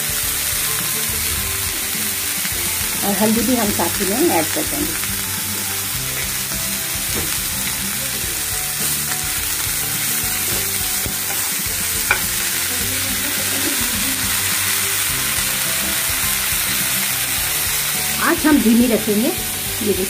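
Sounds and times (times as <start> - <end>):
food sizzling in hot oil: 0.0 - 20.0
spatula stirring in pan: 5.0 - 14.2.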